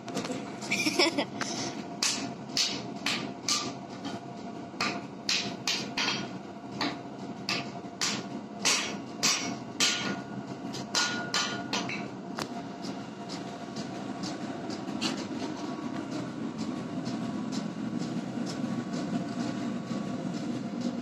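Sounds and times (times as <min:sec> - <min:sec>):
hammer striking steel on anvil: 0:02.0 - 0:03.8, 0:04.8 - 0:12.1.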